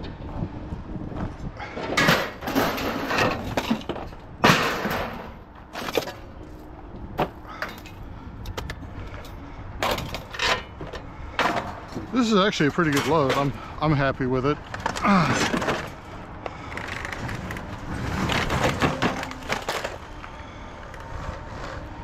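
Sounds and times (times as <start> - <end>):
scrap crashing and clattering: 1.7 - 6.2, 14.6 - 16.2, 16.8 - 20.1.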